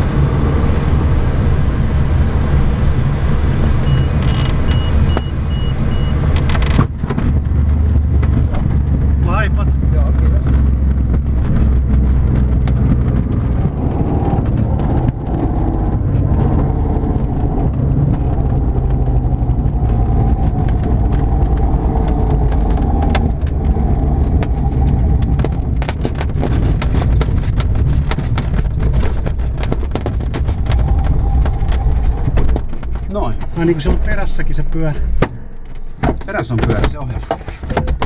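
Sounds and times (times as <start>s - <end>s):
low rumble of glider wheel: 0.0s - 36.0s
airframe rattling clicks and knocks: 9.8s - 34.3s, 35.0s - 38.0s.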